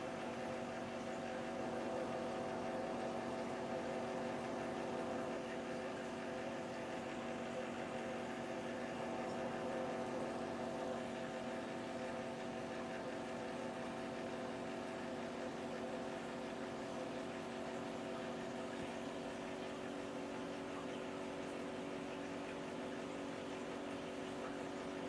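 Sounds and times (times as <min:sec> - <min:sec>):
aquarium pump humming: 0:00.0 - 0:25.0.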